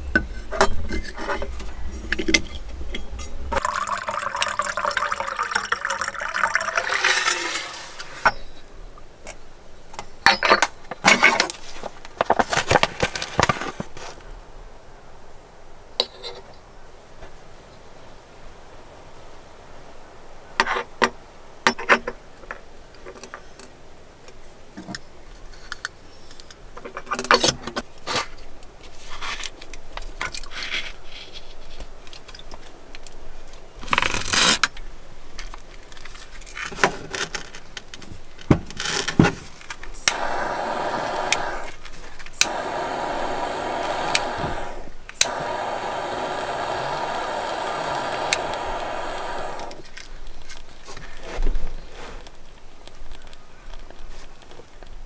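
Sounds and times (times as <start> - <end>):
torch lighter flame hissing: 40.0 - 49.9.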